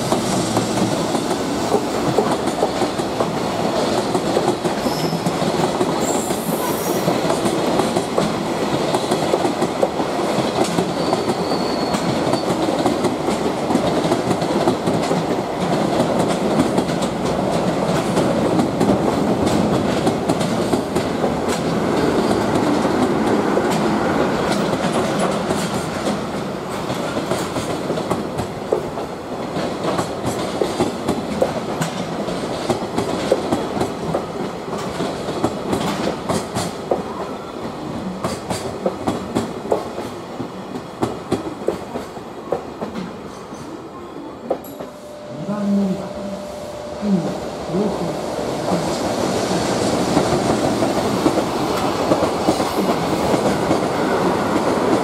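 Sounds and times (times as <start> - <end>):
train wheels clattering over rail joints: 0.0 - 6.4, 7.0 - 37.1, 38.1 - 43.7, 48.6 - 55.0.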